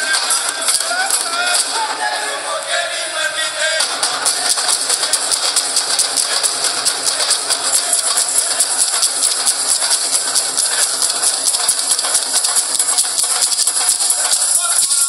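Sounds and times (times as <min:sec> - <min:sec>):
drums playing fast folk beat: 0:00.0 - 0:02.3, 0:03.8 - 0:15.0
jingling hand percussion: 0:03.8 - 0:15.0.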